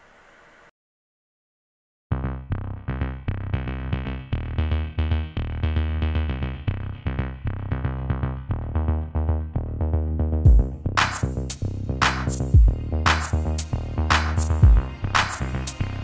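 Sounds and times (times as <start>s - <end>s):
heavy bass line: 2.1s - 16.0s
synthesizer notes: 2.1s - 16.0s
drum-machine beat: 10.5s - 15.8s.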